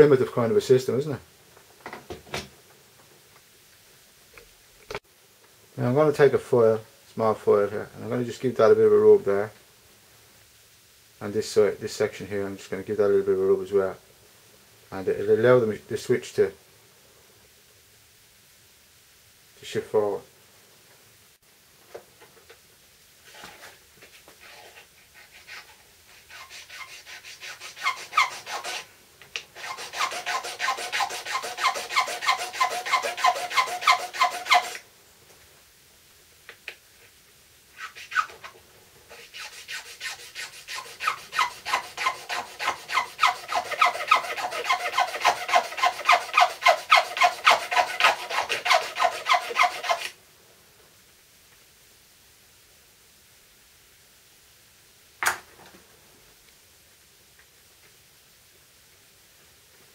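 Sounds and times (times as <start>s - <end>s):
hand file rasping on plastic: 24.4s - 28.9s, 29.6s - 34.8s, 39.1s - 50.1s.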